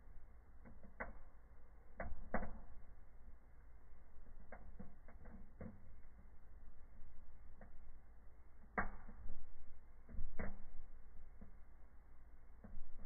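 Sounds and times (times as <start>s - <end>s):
fire crackling: 0.0s - 13.0s
low steady rumble: 0.0s - 13.0s
fire pops: 0.6s - 3.0s, 8.6s - 11.6s.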